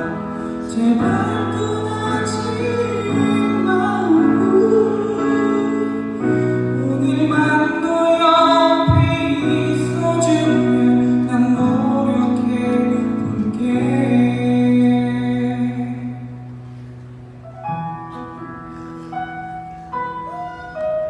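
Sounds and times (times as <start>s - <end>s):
man singing: 0.0s - 16.4s.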